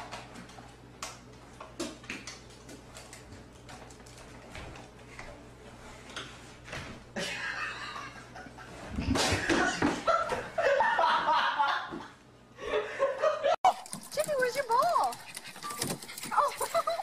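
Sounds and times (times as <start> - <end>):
person laughing: 16.3 - 17.0.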